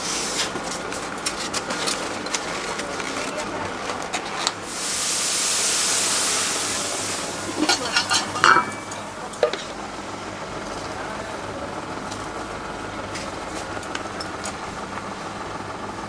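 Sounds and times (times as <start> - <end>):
loud hiss: 4.6 - 7.7
kitchen background: 6.7 - 9.8.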